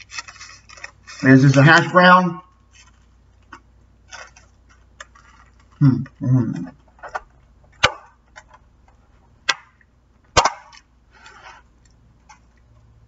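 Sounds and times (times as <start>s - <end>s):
plastic rustle: 0.0s - 5.8s.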